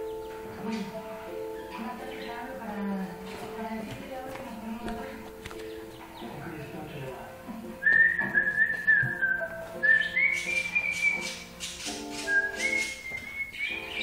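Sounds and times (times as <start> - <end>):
background music: 0.0 - 14.0
person whistling a tune: 7.8 - 11.2, 12.2 - 13.6.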